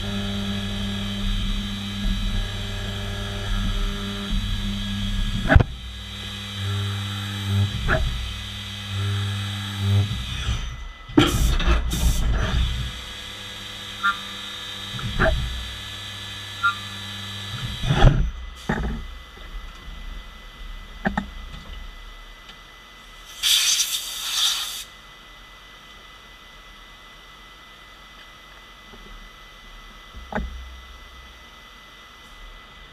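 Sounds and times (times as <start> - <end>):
milling machine hum: 0.0 - 23.5
compressed air hiss: 23.2 - 24.9.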